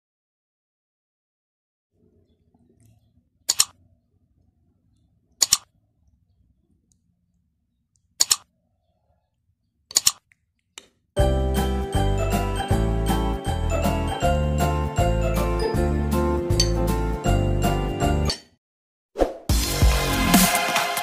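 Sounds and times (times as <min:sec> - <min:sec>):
mouse clicks: 0:03.5 - 0:03.8, 0:05.4 - 0:05.7, 0:07.9 - 0:08.5, 0:09.9 - 0:11.0.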